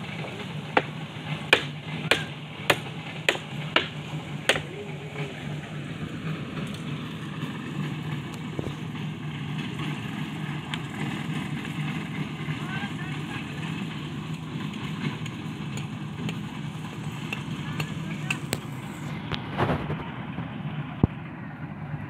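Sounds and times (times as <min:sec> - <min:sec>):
low engine hum: 0:00.0 - 0:22.0
sharp knocks: 0:01.5 - 0:04.7.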